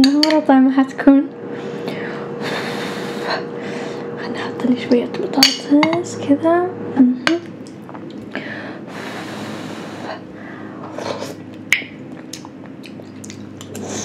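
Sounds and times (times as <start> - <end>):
long breath: 8.3 - 10.8.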